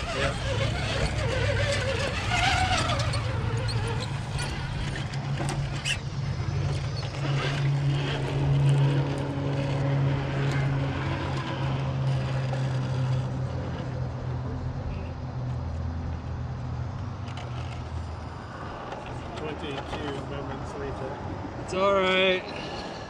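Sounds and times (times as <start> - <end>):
electric motor whirring: 0.0 - 13.6.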